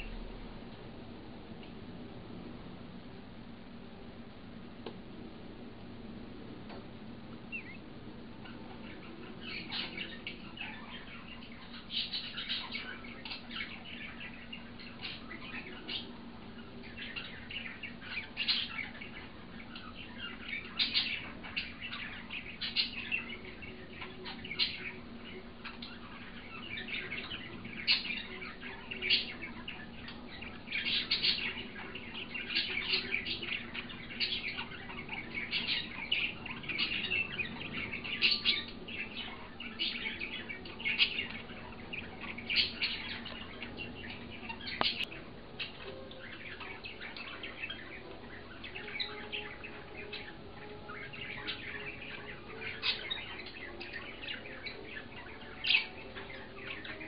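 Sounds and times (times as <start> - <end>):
low steady hum: 0.0 - 57.0
budgerigars chirping: 8.4 - 57.0.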